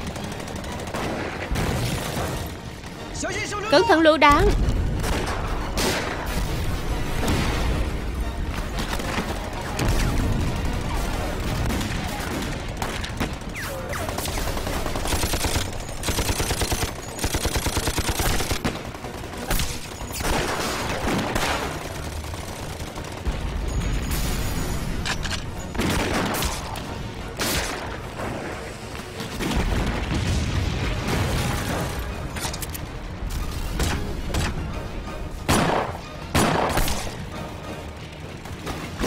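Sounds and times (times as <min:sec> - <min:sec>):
machine-gun bursts: 0:10.5 - 0:23.8
rifle shots: 0:35.5 - 0:37.2.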